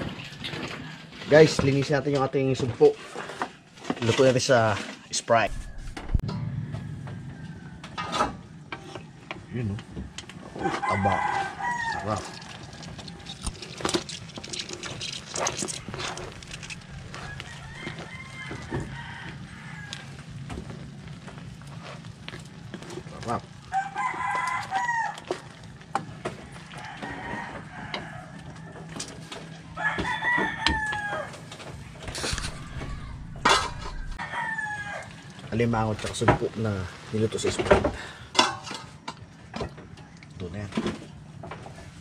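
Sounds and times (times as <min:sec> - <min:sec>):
rooster-like call: 0:05.4 - 0:09.0, 0:10.4 - 0:13.6, 0:16.2 - 0:20.8, 0:23.6 - 0:35.5
food simmering: 0:10.2 - 0:29.7
chickens calling: 0:29.5 - 0:35.2.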